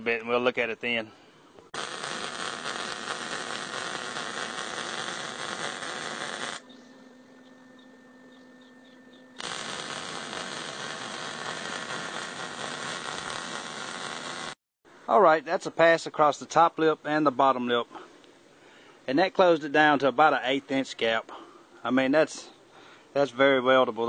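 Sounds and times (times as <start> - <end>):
welding arc sizzling: 1.8 - 6.6, 9.4 - 14.6.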